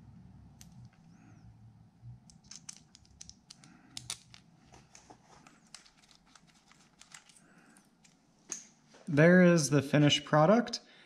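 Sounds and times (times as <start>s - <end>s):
metallic clicks and clinks: 2.3s - 4.5s, 5.6s - 8.2s.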